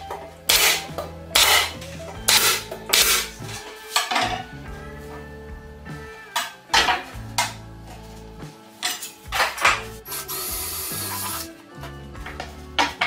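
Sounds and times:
background music: 0.0 - 13.0
cordless drill boring wood: 10.1 - 11.5.

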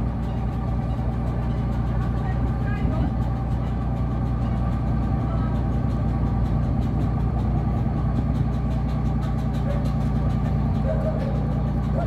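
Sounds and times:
boat engine idling: 0.0 - 12.0.

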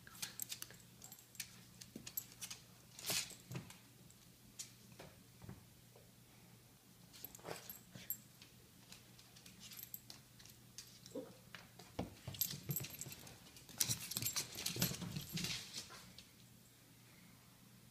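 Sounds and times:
light metallic jingling: 12.3 - 15.8.

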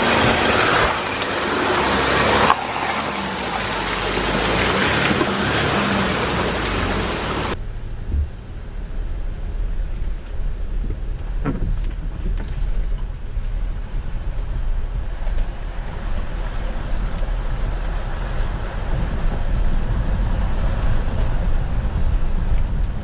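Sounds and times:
fast river water rushing: 0.0 - 7.6
vehicle engine at low revs: 0.0 - 23.0.

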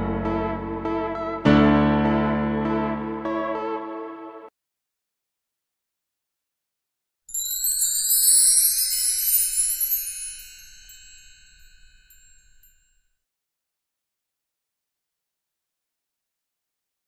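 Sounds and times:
sparkling chime sound effect: 7.3 - 12.8.

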